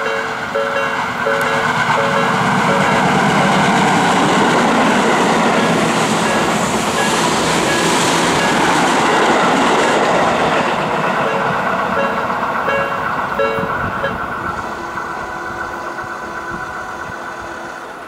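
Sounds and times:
crossing warning bell: 0.0 - 3.8, 4.8 - 8.9, 11.0 - 18.0
electric train passing: 0.0 - 18.0.

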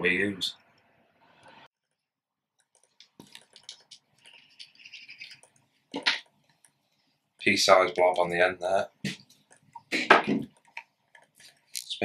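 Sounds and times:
clicks and rustles of handling: 2.6 - 6.8.

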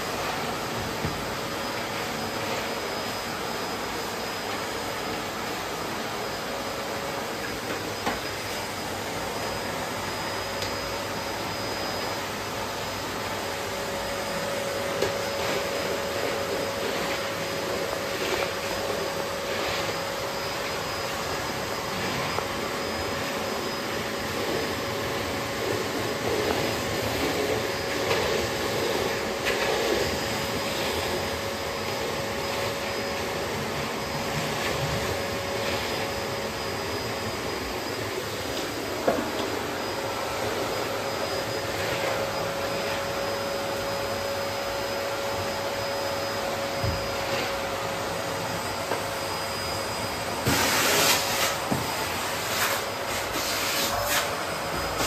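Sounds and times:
vacuum cleaner running: 0.0 - 55.0
vacuum knocking on hard floor: 0.7 - 1.4, 39.0 - 39.6, 46.8 - 47.1, 51.7 - 52.0.

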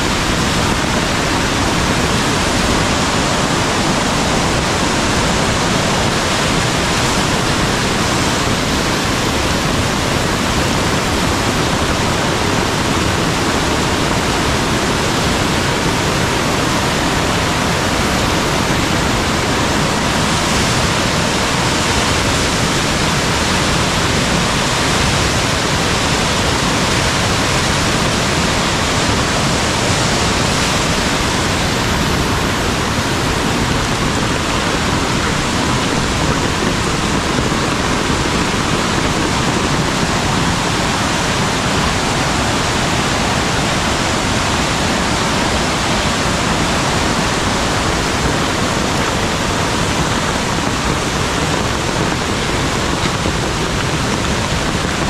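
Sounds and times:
stream water rushing: 0.0 - 55.0.

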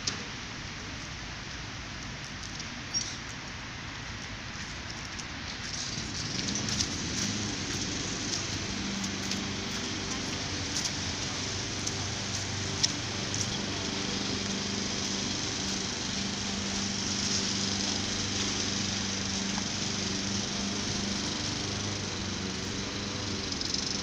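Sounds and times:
steady hiss: 0.0 - 24.0
small engine humming: 2.7 - 24.0.

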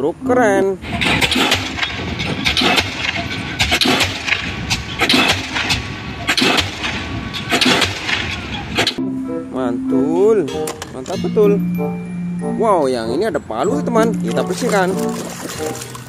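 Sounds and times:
pile driver hammer pounding: 0.8 - 9.0.

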